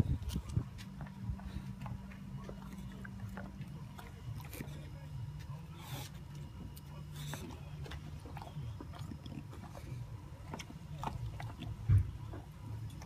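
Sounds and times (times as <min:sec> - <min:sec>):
dog breathing: 0:00.0 - 0:13.0
dog licking and lapping: 0:00.2 - 0:13.0.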